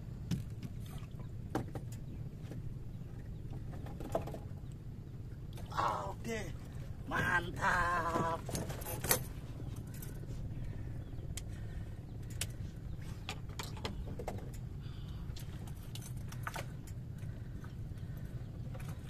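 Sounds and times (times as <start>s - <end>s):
steady low rumble: 0.0s - 19.0s
fishing gear clicks and knocks: 8.2s - 10.3s, 15.3s - 19.0s.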